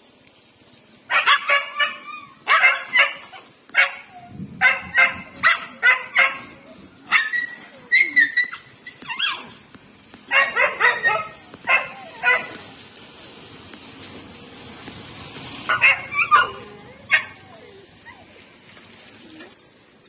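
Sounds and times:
dogs barking and yelping: 1.1 - 12.8, 15.6 - 19.6
dog drawn-out cry: 10.3 - 12.7, 15.7 - 18.4.

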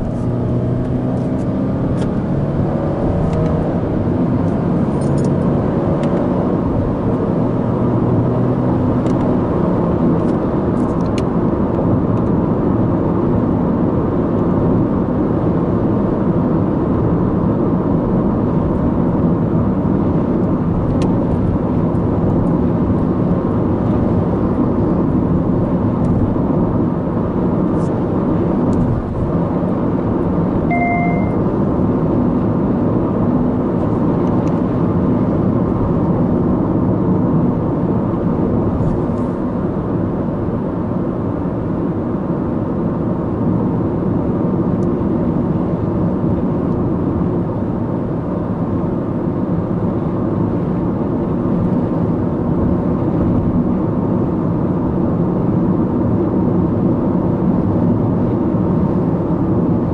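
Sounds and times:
car engine accelerating: 0.0 - 48.3
road noise: 0.0 - 59.9.

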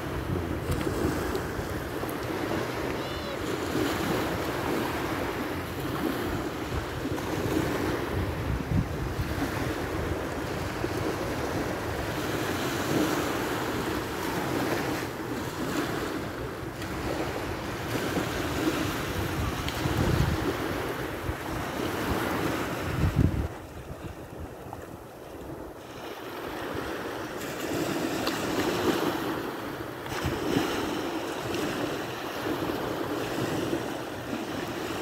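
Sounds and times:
wind buffeting microphone: 0.0 - 16.0, 16.7 - 25.8
small waves breaking on shore: 0.0 - 35.0.

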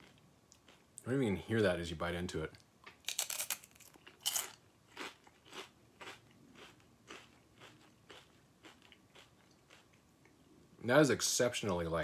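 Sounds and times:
crunchy chewing: 2.8 - 10.4
biting crispy cracker: 3.1 - 10.0.

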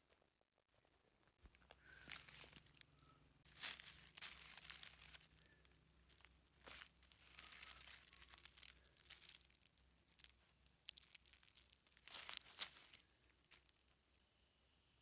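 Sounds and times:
dry leaves crackling and rustling: 1.8 - 2.8, 3.4 - 13.8.

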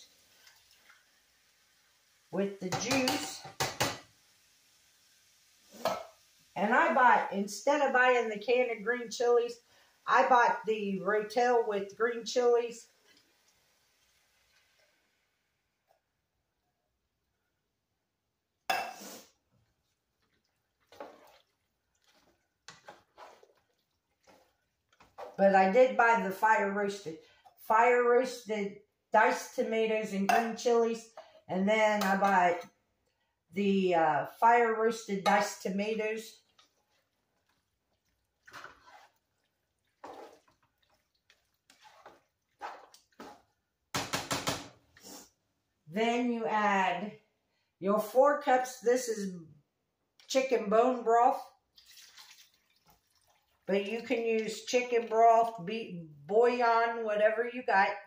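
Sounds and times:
spoon stirring food in metal pot: 2.6 - 4.1, 18.7 - 25.8, 35.2 - 45.2
scrapes and squelches: 20.8 - 25.4, 38.4 - 43.6.

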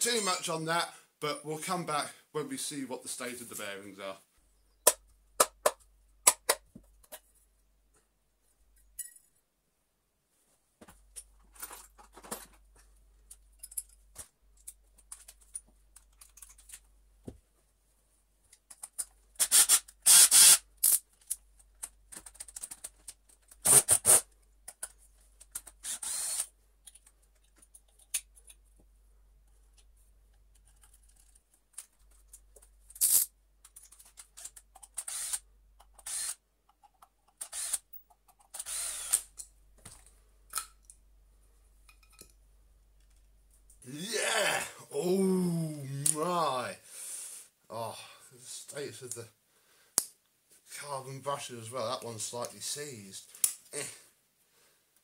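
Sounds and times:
clinks of screws and parts: 8.8 - 9.4, 13.3 - 16.8, 41.9 - 42.4.

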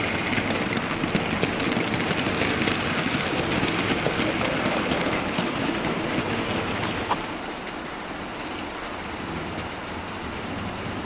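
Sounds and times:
model train wheels rumbling: 0.0 - 11.0
wheels clicking over rail joints: 0.0 - 11.0.

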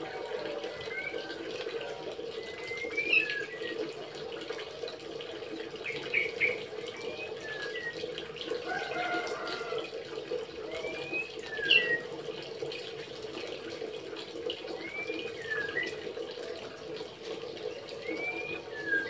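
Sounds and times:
bird whistling calls: 2.4 - 3.8, 5.9 - 8.1, 10.7 - 12.1, 14.8 - 16.0, 17.9 - 19.0.

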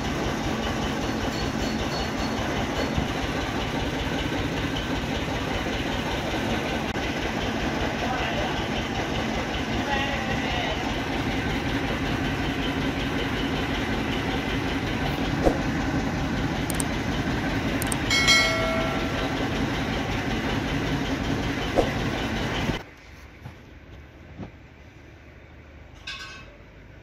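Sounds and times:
rhythmic machine running: 0.0 - 22.8.

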